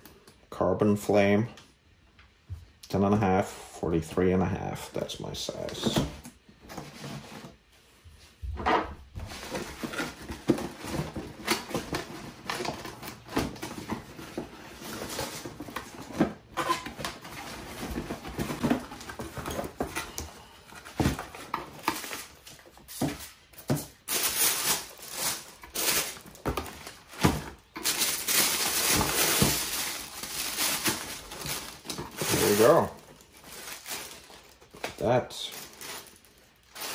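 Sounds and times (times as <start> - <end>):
tissue paper rustling: 24.0 - 36.9.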